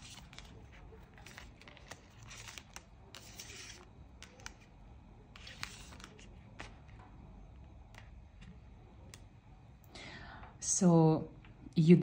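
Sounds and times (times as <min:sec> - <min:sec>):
cards sliding against each other: 0:00.0 - 0:04.7, 0:05.3 - 0:06.9
cards clicking: 0:00.0 - 0:09.3.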